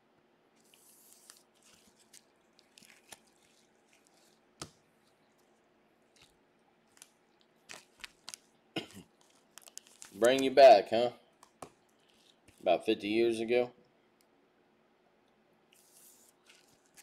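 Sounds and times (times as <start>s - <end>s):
cards and packs rustling: 0.6s - 10.8s, 15.8s - 17.0s.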